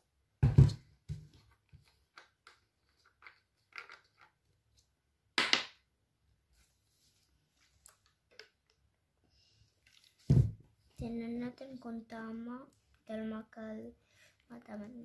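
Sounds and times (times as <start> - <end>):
plastic cap clicks and crackles: 2.1 - 4.3.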